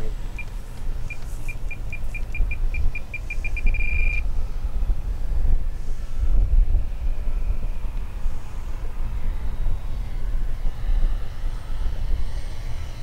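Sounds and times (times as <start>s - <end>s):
electronic beeps merging into tone: 1.5s - 4.2s.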